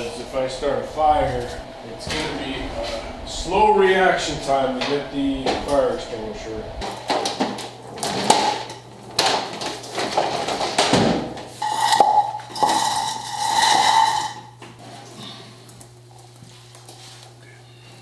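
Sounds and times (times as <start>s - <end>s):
broom sweeping concrete floor: 11.4s - 15.4s
scraping with squealing ring: 11.6s - 14.6s.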